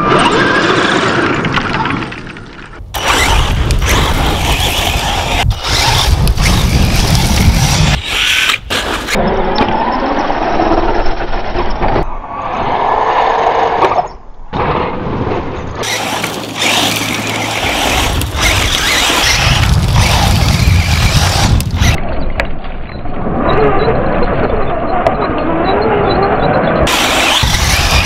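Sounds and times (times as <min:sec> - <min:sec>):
tyres scrabbling over dirt: 0:00.4 - 0:09.2, 0:15.8 - 0:22.0
rc car motor whine: 0:03.0 - 0:09.2, 0:15.8 - 0:22.0, 0:25.4 - 0:28.0.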